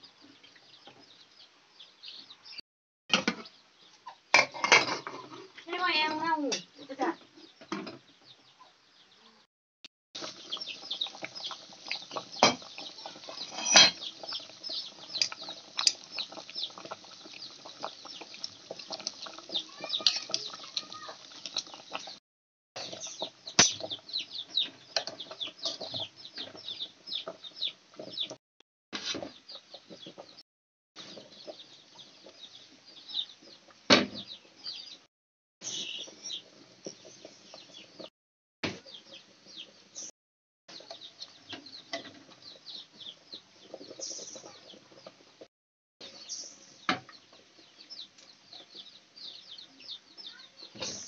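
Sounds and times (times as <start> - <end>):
birds chirping: 10.2 - 22.2, 22.8 - 28.4, 31.0 - 38.1, 40.7 - 45.2, 46.0 - 51.0
metal utensils knocking on pot: 13.4 - 14.1, 23.6 - 23.9.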